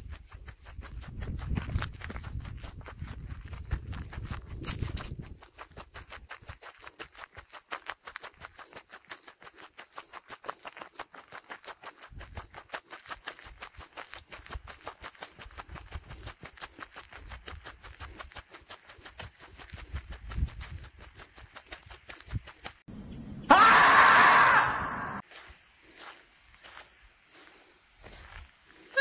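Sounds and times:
footsteps on trail: 0:00.0 - 0:22.9, 0:25.2 - 0:29.0.

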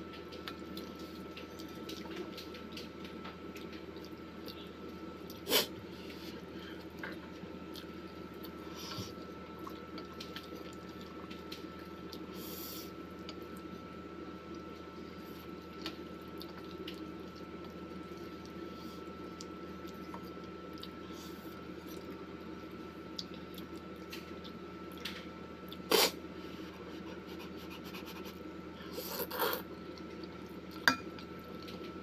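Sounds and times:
faint steady hum: 0:00.0 - 0:32.0
chewing and wet mouth sounds: 0:00.1 - 0:12.4, 0:14.5 - 0:26.1.

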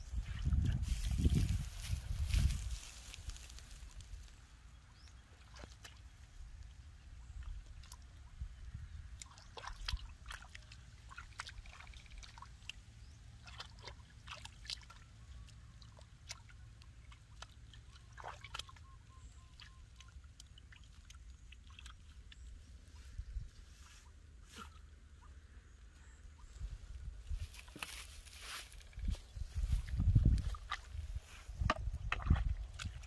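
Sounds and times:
splashing in muddy water: 0:00.2 - 0:23.0, 0:29.6 - 0:33.0.

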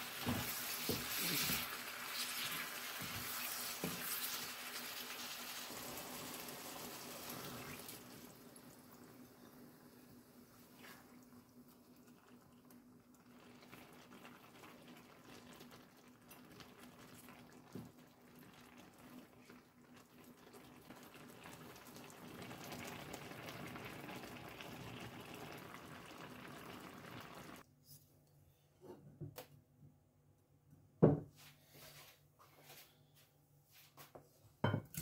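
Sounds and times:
mixture simmering in a frying pan: 0:00.0 - 0:27.7.

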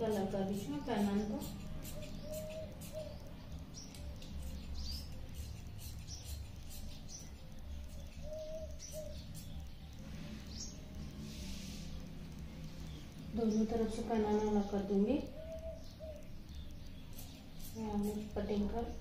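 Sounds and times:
scissors snipping fabric: 0:00.0 - 0:03.0
birds chirping: 0:00.0 - 0:19.0
steady low hum: 0:00.0 - 0:19.0.

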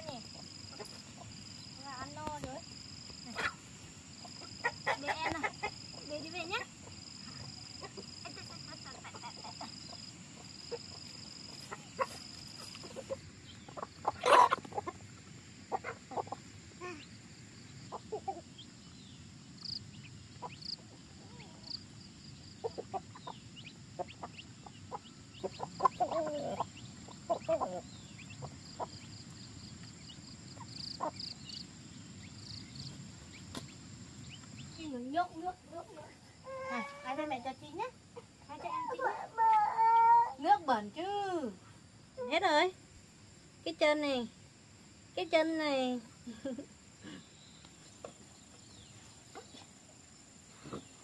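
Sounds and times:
hens and roosters clucking: 0:00.0 - 0:34.8, 0:46.6 - 0:51.0.

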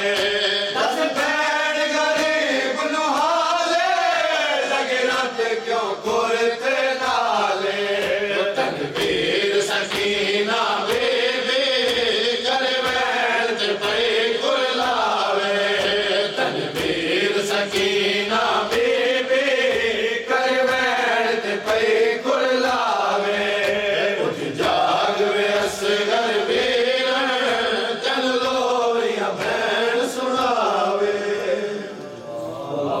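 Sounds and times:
men chanting in unison: 0:00.0 - 0:33.0
palm slaps on chests: 0:06.0 - 0:30.8.

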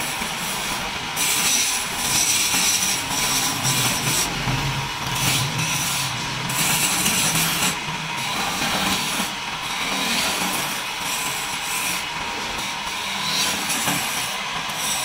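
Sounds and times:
lathe motor hum: 0:00.0 - 0:15.0
chisel scraping on lathe: 0:01.2 - 0:09.1.

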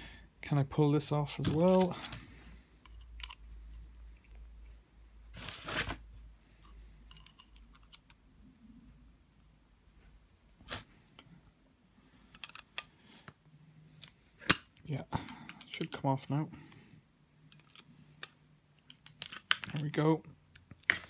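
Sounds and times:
pliers clicking and scraping on metal: 0:02.8 - 0:04.4, 0:06.6 - 0:08.2.

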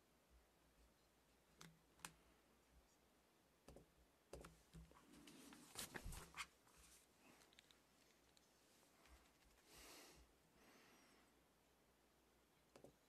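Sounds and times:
soft rustles: 0:04.8 - 0:09.9.

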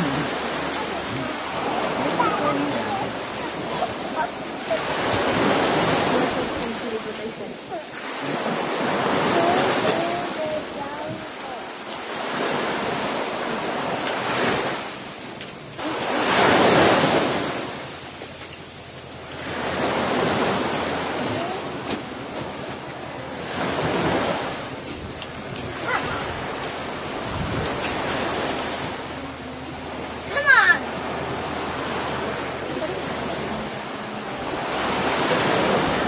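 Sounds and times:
gusty wind on microphone: 0:23.4 - 0:29.2.

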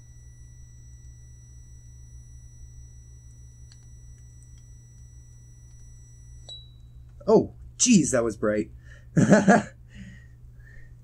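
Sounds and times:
high test tone from speaker: 0:00.0 - 0:08.3
low hum: 0:00.0 - 0:11.0.

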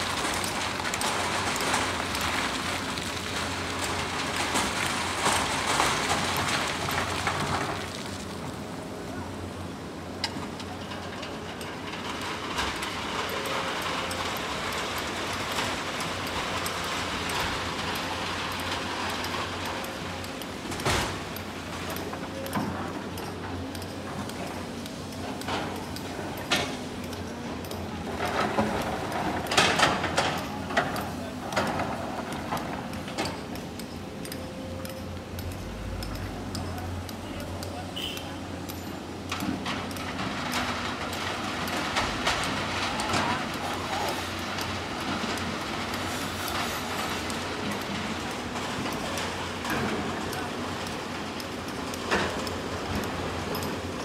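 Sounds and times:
sand and gravel pouring: 0:00.0 - 0:08.8
rocks clanking on metal bed: 0:00.0 - 0:08.9, 0:10.1 - 0:34.0, 0:38.6 - 0:54.0
excavator diesel engine droning: 0:21.3 - 0:54.0.

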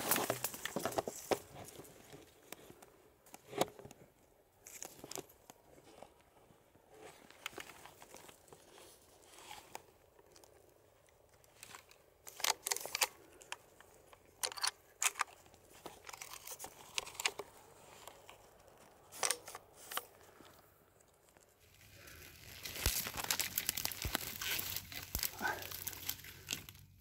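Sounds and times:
dry undergrowth crackling: 0:00.0 - 0:27.0.

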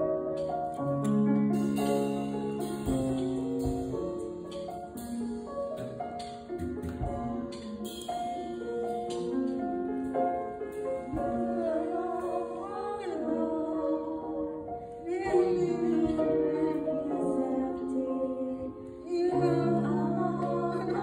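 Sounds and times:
piano chords: 0:00.0 - 0:21.0
woman singing slow song: 0:11.1 - 0:21.0.

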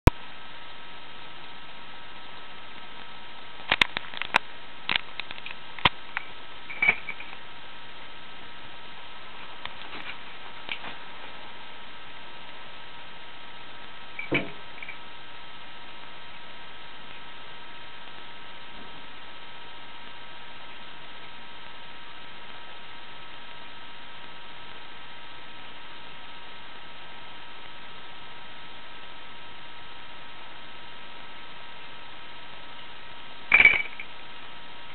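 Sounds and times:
electrical hum and hiss: 0:00.0 - 0:34.9.

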